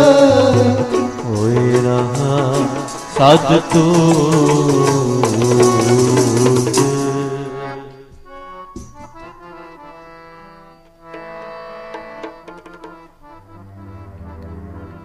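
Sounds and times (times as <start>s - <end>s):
harmonium chords: 0.0s - 15.0s.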